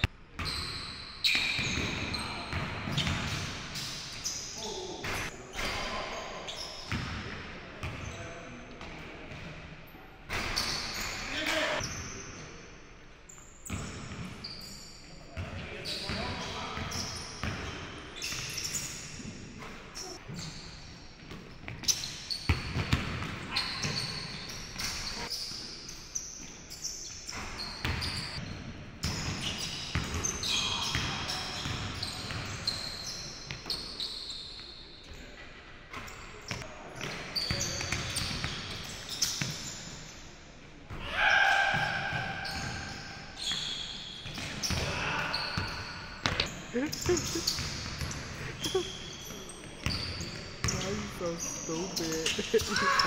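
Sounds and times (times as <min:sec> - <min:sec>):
sneakers squeaking: 0:00.0 - 0:09.6, 0:10.3 - 0:12.6, 0:13.3 - 0:40.3, 0:40.9 - 0:53.0
basketball bouncing on wooden floor: 0:45.6 - 0:48.9.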